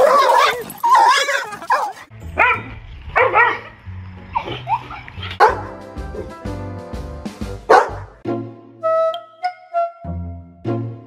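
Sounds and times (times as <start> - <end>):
dog barking: 0.0 - 3.8, 5.4 - 6.3, 7.7 - 8.1
background music with bass line: 2.1 - 11.0.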